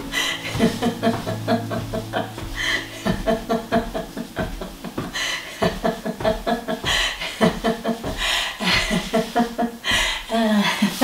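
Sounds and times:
person laughing: 5.5 - 10.0.

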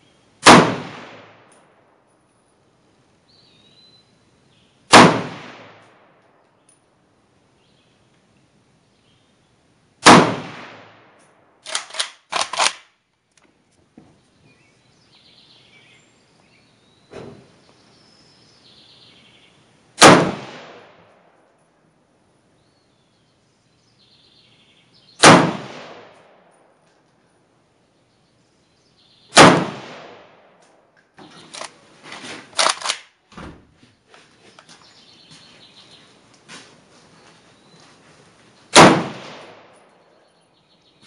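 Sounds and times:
faint gunshot: 0.4 - 1.5, 4.9 - 6.0, 10.0 - 11.1, 20.0 - 21.1, 25.2 - 26.4, 29.4 - 30.4, 38.8 - 39.8
loud rifle shots: 0.4 - 1.5, 4.9 - 6.2, 10.0 - 12.8, 20.0 - 21.1, 25.2 - 26.5, 29.3 - 30.6, 38.7 - 39.8.

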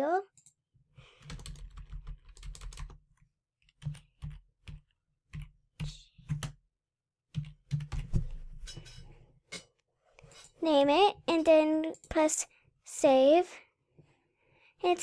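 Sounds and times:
typing on computer keyboard: 1.2 - 3.0, 3.7 - 5.5.

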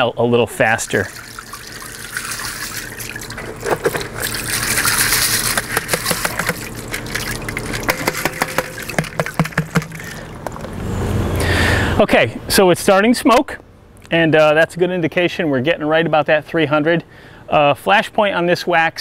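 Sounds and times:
pellets clicking: 1.2 - 10.8.

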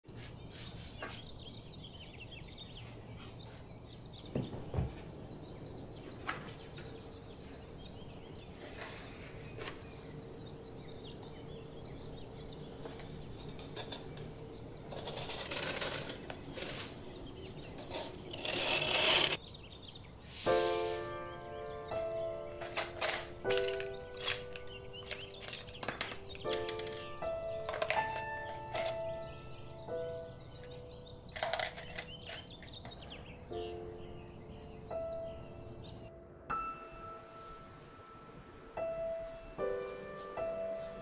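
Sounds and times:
paper rustling and scraping: 8.5 - 10.0, 14.9 - 19.4.

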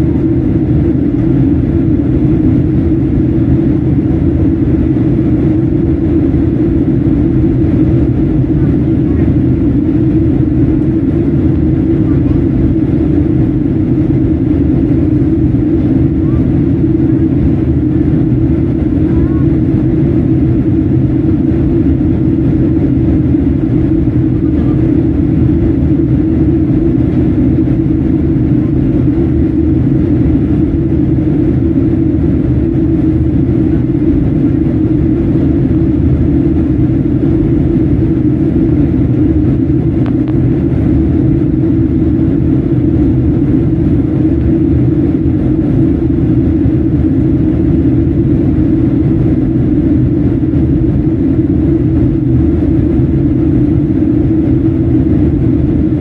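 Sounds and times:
airplane cabin engine drone: 0.0 - 56.0.

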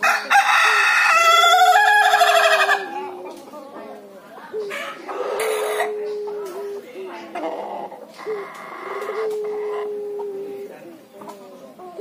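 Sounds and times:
rooster crowing: 0.0 - 2.9.

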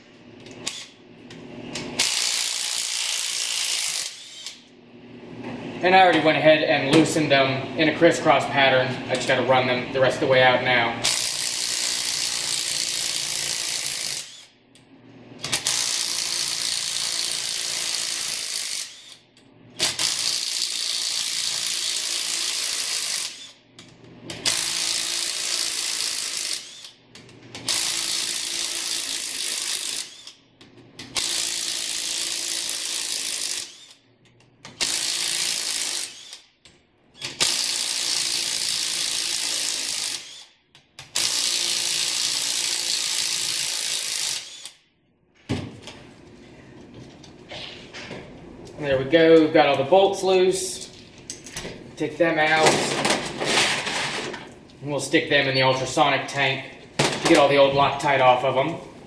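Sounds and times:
cordless power tool spinning bolts: 0.4 - 1.0, 1.8 - 4.6, 11.0 - 14.6, 15.4 - 23.6, 24.2 - 30.4, 31.0 - 34.0, 34.7 - 36.5, 37.1 - 44.8.

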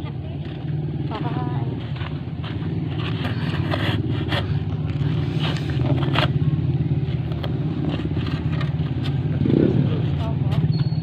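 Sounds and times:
spade scraping into soil: 2.8 - 6.4.

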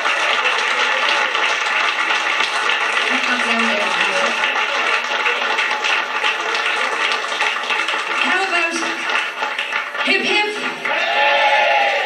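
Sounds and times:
crowd clapping: 0.0 - 12.0
voices: 3.1 - 5.1.

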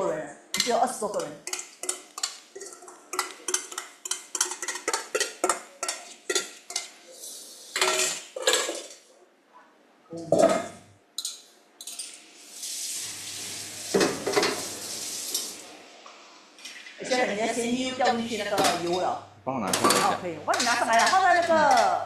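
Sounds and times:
kitchenware clattering: 0.6 - 7.0, 7.6 - 9.1, 10.3 - 12.2, 13.9 - 14.6, 18.0 - 22.0.

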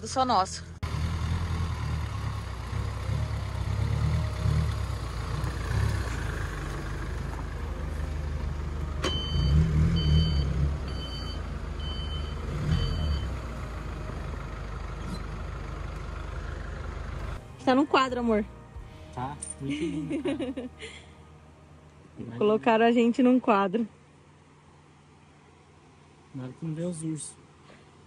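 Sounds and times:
van engine running: 0.0 - 28.0
reversing alarm beeping: 9.0 - 13.4.

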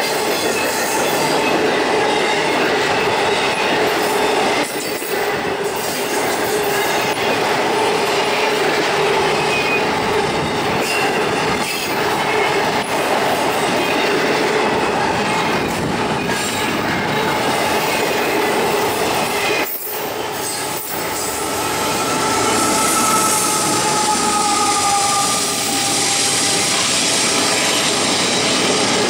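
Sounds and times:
train wheels rumbling on rails: 0.0 - 29.0
wheel squeal: 19.8 - 29.0.

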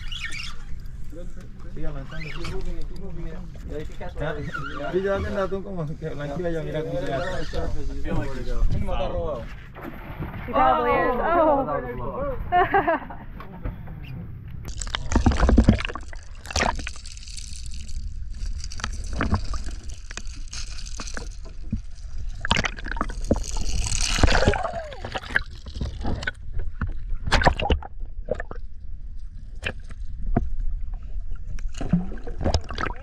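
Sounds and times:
water sloshing and gurgling: 7.1 - 10.5, 14.6 - 33.0
water splashes: 14.7 - 28.7, 31.6 - 33.0.

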